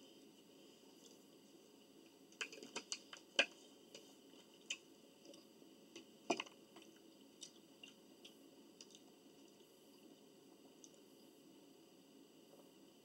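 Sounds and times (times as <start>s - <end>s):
chewing: 6.8s - 9.7s.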